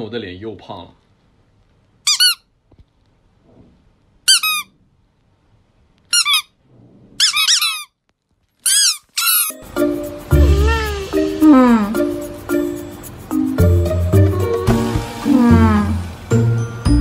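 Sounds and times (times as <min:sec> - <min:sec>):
squeaky toy squeaks: 0:02.0 - 0:02.5, 0:04.3 - 0:04.7, 0:06.1 - 0:06.6, 0:07.2 - 0:08.0, 0:08.6 - 0:09.6, 0:10.4 - 0:11.1.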